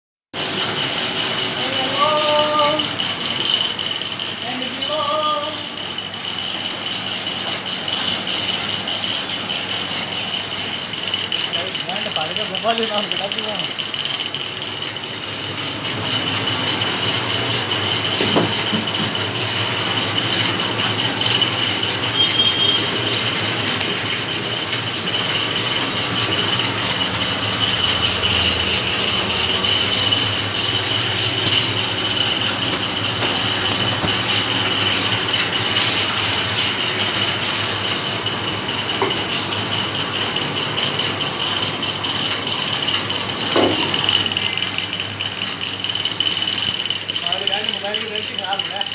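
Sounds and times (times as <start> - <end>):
machine rattling with high whine: 0.4 - 48.9.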